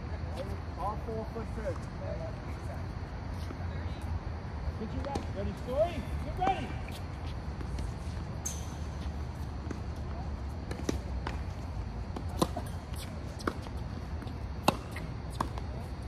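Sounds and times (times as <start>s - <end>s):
steady low hum: 0.0s - 16.0s
tennis ball bouncing: 5.0s - 5.3s, 10.6s - 15.7s
tennis racket hitting ball: 14.6s - 15.6s.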